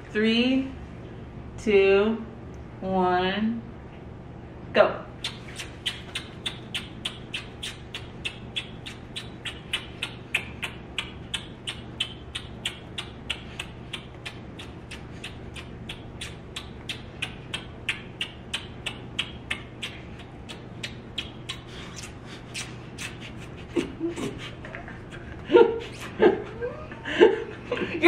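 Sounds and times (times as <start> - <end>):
lip smacks kissing: 5.2 - 24.8, 25.8 - 26.2.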